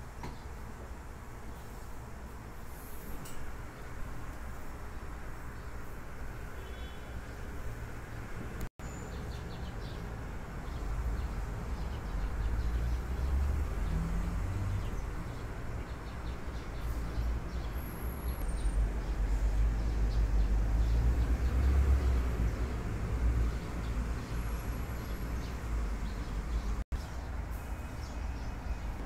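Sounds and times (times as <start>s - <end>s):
sparrows chirping: 6.6s - 7.6s, 8.8s - 29.0s.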